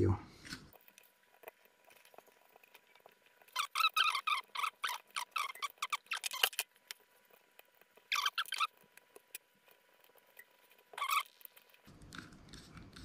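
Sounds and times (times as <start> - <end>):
screw squeaking: 3.5 - 6.6, 8.1 - 8.7, 10.9 - 11.4.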